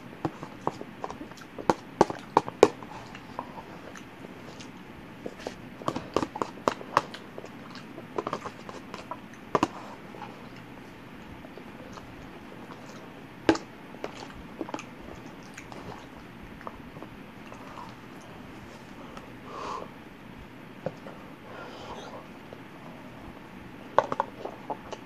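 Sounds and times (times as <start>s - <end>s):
chewing and mouth smacks: 0.4s - 18.3s.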